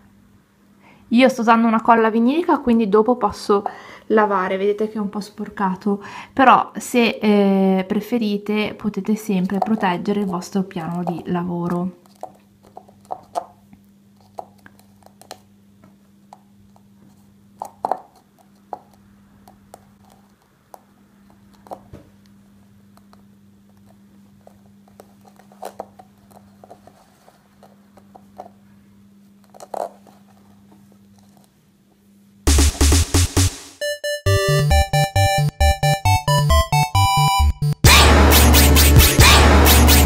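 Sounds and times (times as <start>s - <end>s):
yarn rustling on paper cone: 23.7s - 31.6s
music: 32.5s - 40.0s.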